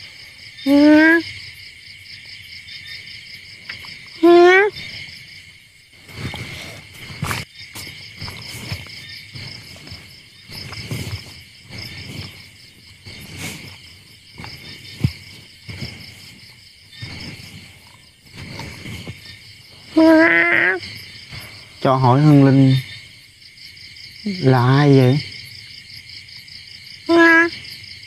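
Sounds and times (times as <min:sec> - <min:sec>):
crickets chirping: 0:00.0 - 0:28.0
soft thumps and rustles: 0:06.0 - 0:19.5.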